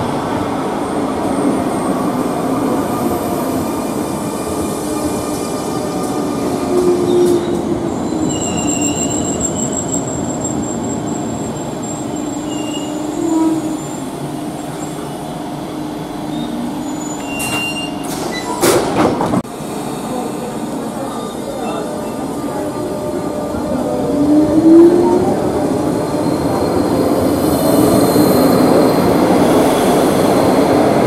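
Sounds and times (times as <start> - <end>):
train rail noise: 0.0 - 31.0
high thin wheel squeal: 7.1 - 14.1, 16.3 - 18.6.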